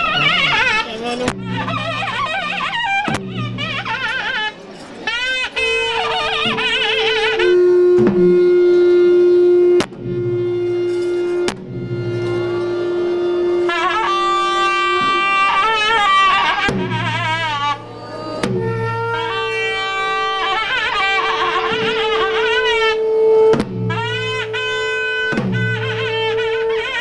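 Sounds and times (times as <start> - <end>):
heavy drum strokes: 0.0 - 4.5
double-reed pipe melody: 0.0 - 27.0
drone note: 7.4 - 15.2.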